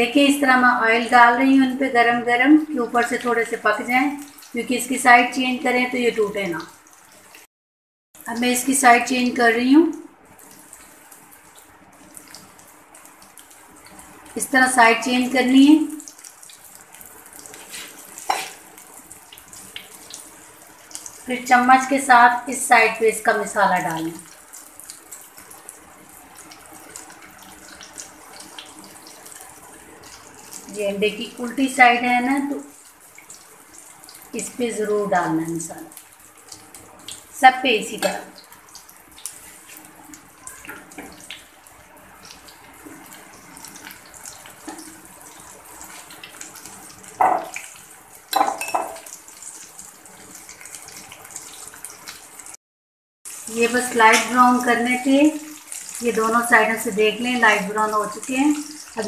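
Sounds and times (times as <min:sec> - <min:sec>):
oil sizzling: 0:00.0 - 0:07.5, 0:08.2 - 0:52.6, 0:53.3 - 0:59.0
oil crackling and popping: 0:15.9 - 0:21.3, 0:24.0 - 0:30.8, 0:38.3 - 0:48.4, 0:49.0 - 0:52.6, 0:53.3 - 0:59.0.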